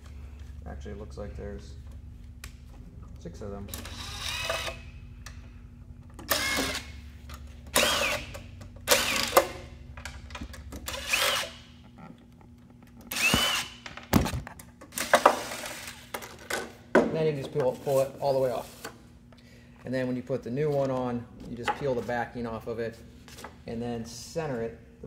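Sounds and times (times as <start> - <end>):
power drill driving screws: 6.3 - 6.9, 7.7 - 8.3, 8.9 - 9.5, 10.9 - 11.6, 13.1 - 13.8.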